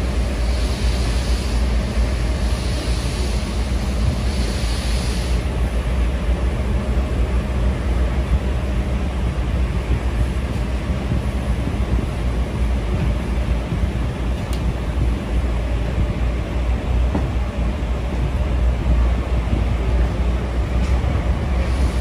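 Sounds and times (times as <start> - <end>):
steam locomotive hisses: 0.0 - 7.3, 19.0 - 22.0
low rumble of moving carriage: 0.0 - 22.0.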